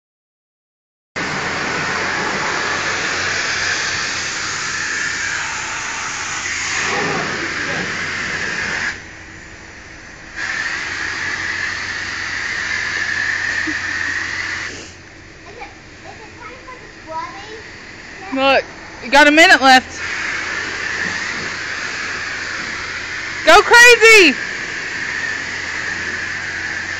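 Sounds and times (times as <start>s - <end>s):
pressure washer spraying water: 1.2s - 9.0s, 10.3s - 15.0s, 19.4s - 26.9s.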